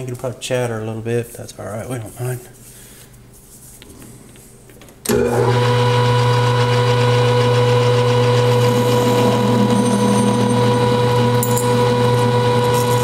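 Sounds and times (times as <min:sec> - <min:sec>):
metal lathe motor hum and whine: 0:05.1 - 0:13.0.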